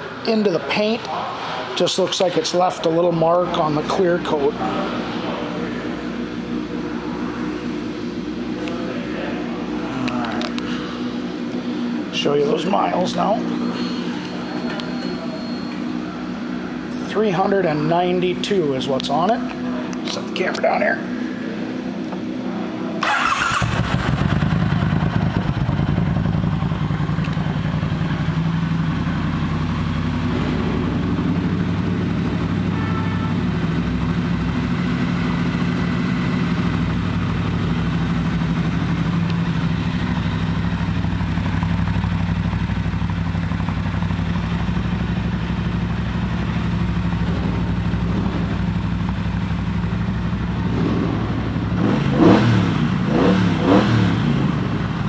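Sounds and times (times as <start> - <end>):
motorcycle engine starting and idling: 1.6 - 20.7, 21.5 - 55.0.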